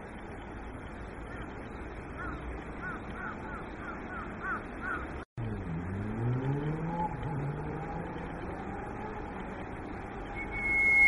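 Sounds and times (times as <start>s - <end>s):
vehicle engine speeding up: 5.4s - 11.0s.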